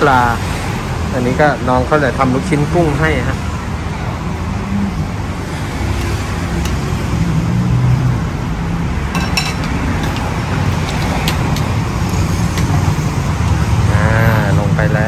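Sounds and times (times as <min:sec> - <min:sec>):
ladle clinking against metal pot: 0:09.1 - 0:11.8.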